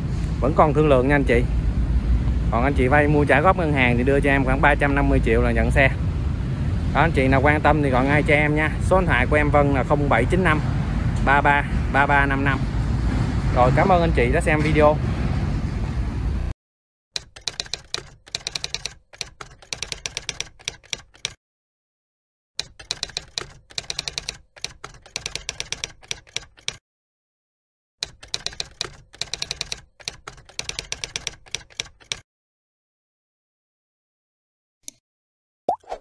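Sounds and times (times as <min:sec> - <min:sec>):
keyboard key clicks: 0:17.2 - 0:21.4, 0:22.6 - 0:26.8, 0:28.0 - 0:32.2.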